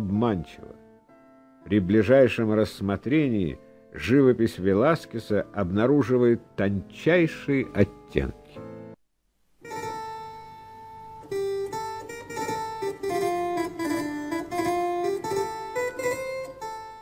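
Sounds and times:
plucked string melody: 0:09.6 - 0:17.0.

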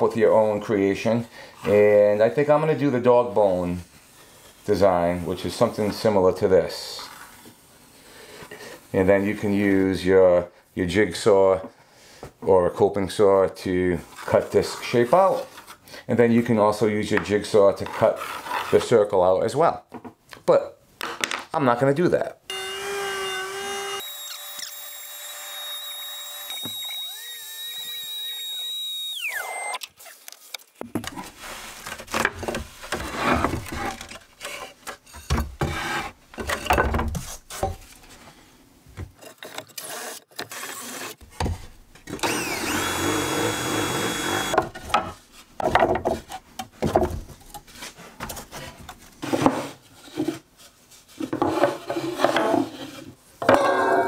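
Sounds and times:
cordless drill boring into wood: 0:22.5 - 0:29.8, 0:39.8 - 0:41.2, 0:42.1 - 0:44.6
power tool bursts: 0:22.5 - 0:29.8, 0:42.2 - 0:44.6
router high whine: 0:22.5 - 0:29.8, 0:42.2 - 0:44.6.

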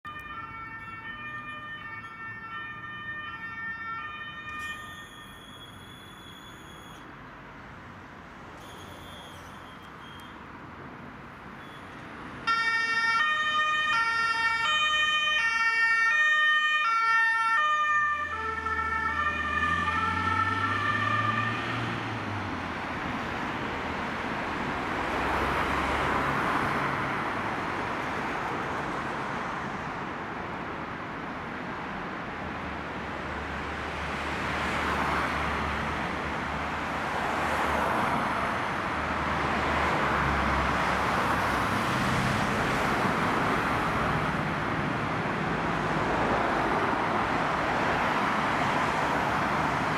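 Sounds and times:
road traffic noise: 0:00.0 - 0:49.9
two-tone siren: 0:00.1 - 0:07.1, 0:11.6 - 0:22.0.

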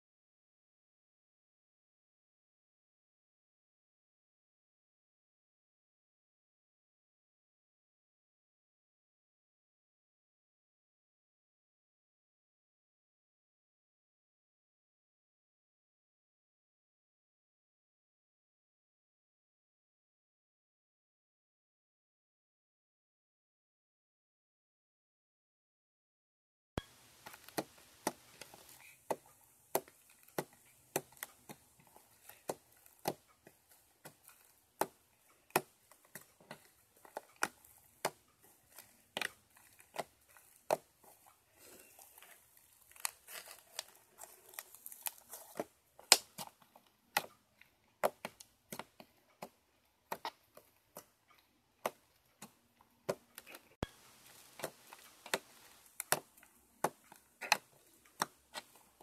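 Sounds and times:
slime stretching crackle: 0:27.0 - 0:46.6.

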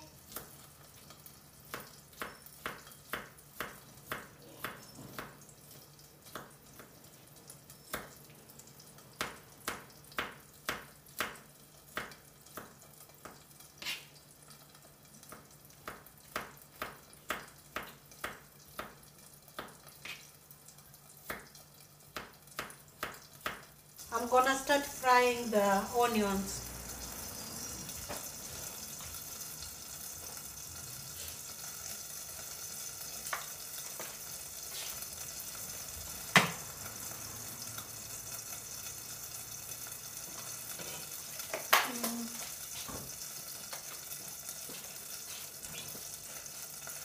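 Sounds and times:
knife chopping on plastic board: 0:01.7 - 0:05.4.

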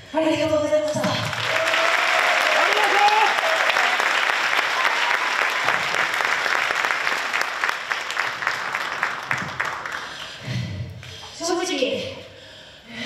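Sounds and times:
audience applauding: 0:01.2 - 0:10.4.

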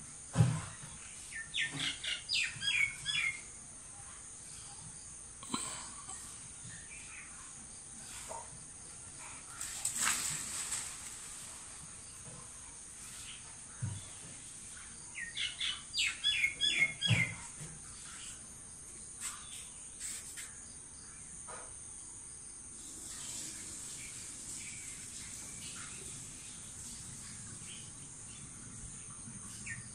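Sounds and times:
bird chirps: 0:01.4 - 0:03.5, 0:15.2 - 0:17.4
insect drone: 0:02.0 - 0:29.9.

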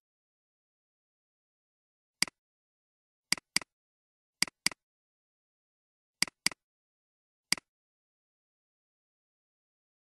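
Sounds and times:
computer mouse clicking: 0:03.3 - 0:03.7, 0:04.4 - 0:04.8, 0:06.2 - 0:06.6.

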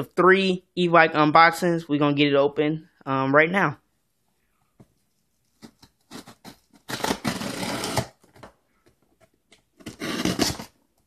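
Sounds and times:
scissors slitting packing tape: 0:05.6 - 0:08.4, 0:09.8 - 0:10.8.

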